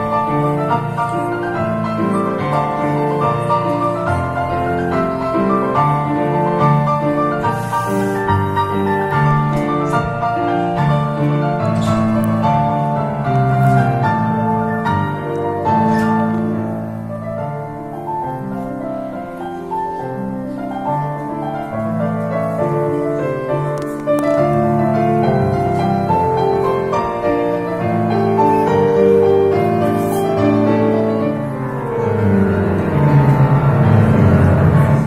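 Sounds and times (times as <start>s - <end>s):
electronic keyboard piano melody: 0.0s - 35.0s.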